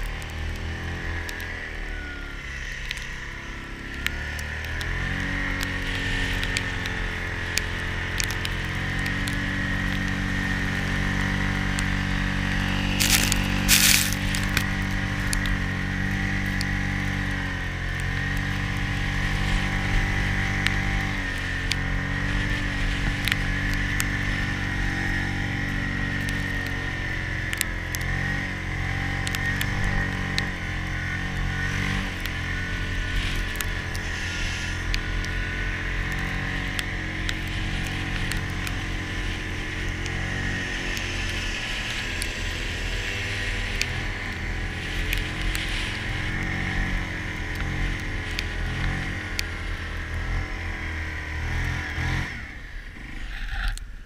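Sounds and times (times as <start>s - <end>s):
high whine: 0.0s - 54.0s
tracked atv engine drone: 0.0s - 54.0s.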